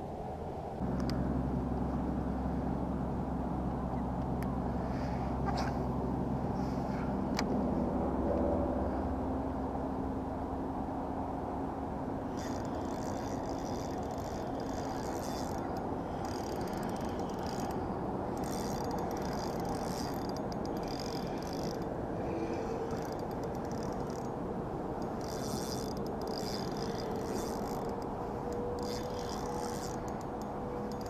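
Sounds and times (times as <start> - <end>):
steady low rush: 0.0 - 31.0
fishing reel cranking and clicking: 12.3 - 24.4, 25.0 - 31.0.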